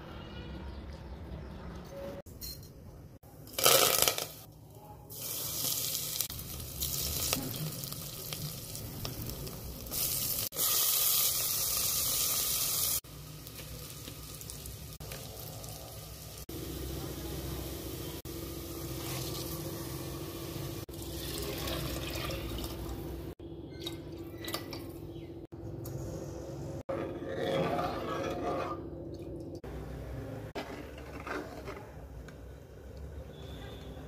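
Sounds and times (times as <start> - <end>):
hot oil sizzling: 5.1 - 23.4.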